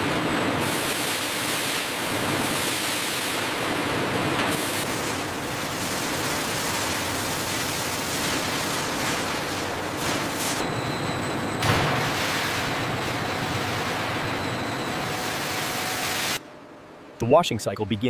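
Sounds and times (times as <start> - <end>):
water pouring and spraying: 0.0 - 10.6, 11.8 - 14.2.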